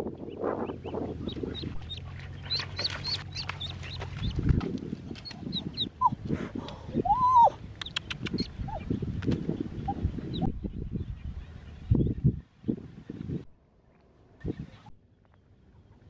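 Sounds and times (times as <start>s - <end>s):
duckling peeping: 0.3s - 4.5s, 5.2s - 6.2s.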